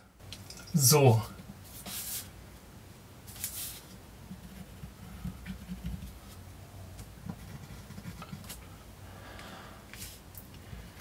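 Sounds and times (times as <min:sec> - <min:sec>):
paper template rustling: 0:03.3 - 0:04.8
pen scratching: 0:07.2 - 0:08.6.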